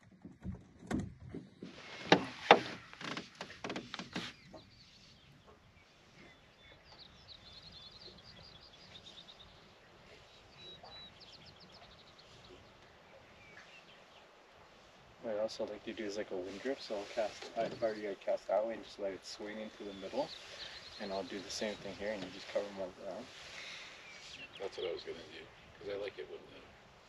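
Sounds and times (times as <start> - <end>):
lakeside ambience: 0.0 - 27.0
bird chirping: 4.1 - 14.4, 15.4 - 26.6.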